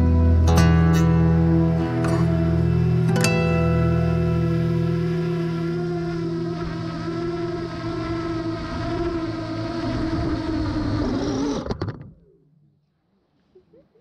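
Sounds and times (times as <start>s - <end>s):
quadcopter propellers buzzing: 1.3s - 12.0s.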